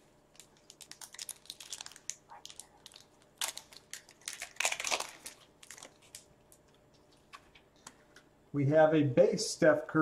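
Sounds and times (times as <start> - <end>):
wrapper crinkling and tearing: 0.3 - 6.6.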